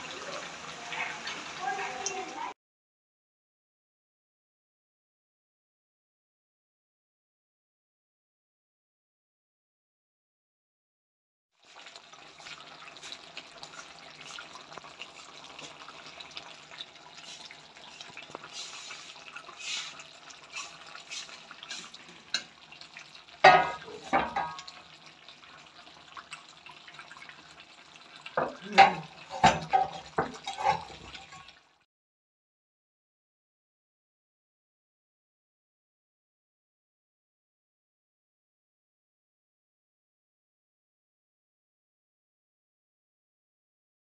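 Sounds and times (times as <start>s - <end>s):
chicken crackling in pan: 11.6s - 31.7s
metal spoon clanking on pan: 20.6s - 22.6s, 23.4s - 24.8s, 28.4s - 31.4s.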